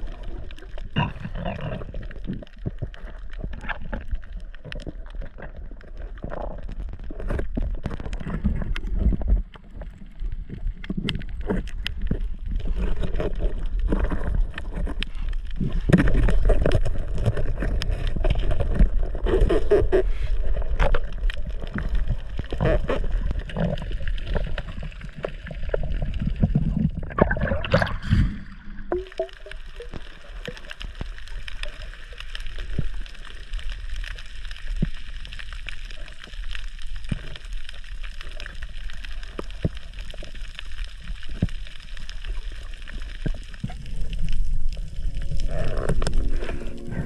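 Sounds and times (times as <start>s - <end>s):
water gurgling and sloshing: 0.0s - 47.0s
bubbling rush: 12.3s - 37.0s, 37.7s - 47.0s.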